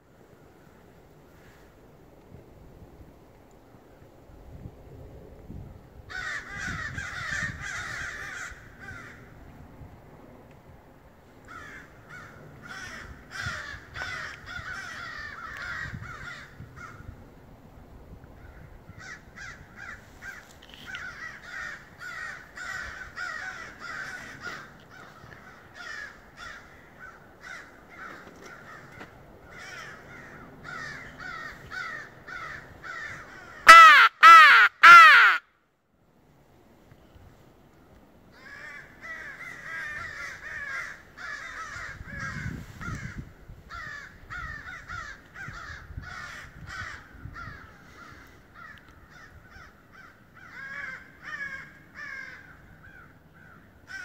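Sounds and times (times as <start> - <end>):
crows cawing: 6.1 - 9.3, 11.5 - 17.0, 18.4 - 35.4, 38.3 - 54.0
crow mouth call caws: 18.4 - 35.4, 38.4 - 54.0.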